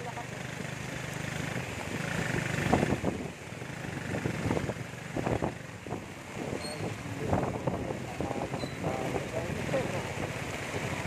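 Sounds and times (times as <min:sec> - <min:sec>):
small motorcycle engine running: 0:00.0 - 0:05.5
heavy rain hissing: 0:00.3 - 0:11.0.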